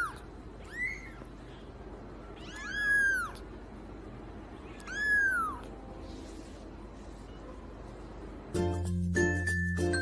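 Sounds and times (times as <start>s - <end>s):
kitten mewing: 0.0s - 1.4s, 2.2s - 3.5s, 4.6s - 5.8s.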